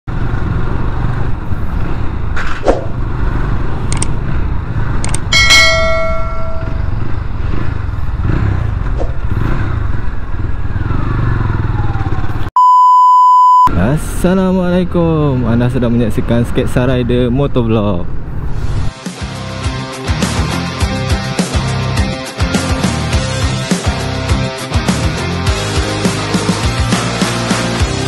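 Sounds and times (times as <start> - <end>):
wind and road noise: 0.1 - 12.5, 13.8 - 19.0
motorcycle engine running: 3.0 - 12.4
bell-like chime: 5.4 - 7.0
electronic beep: 12.6 - 13.7.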